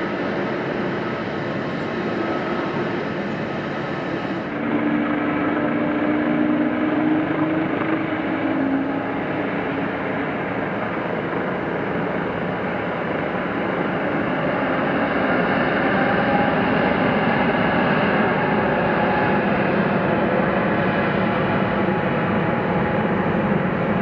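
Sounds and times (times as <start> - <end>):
jet engines rumbling: 0.0 - 24.0.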